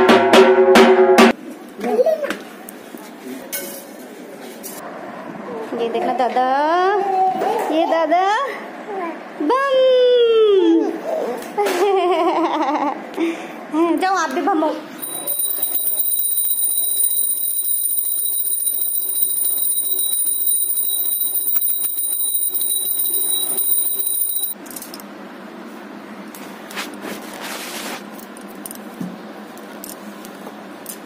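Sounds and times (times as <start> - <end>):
hand bell ringing: 15.0 - 24.6.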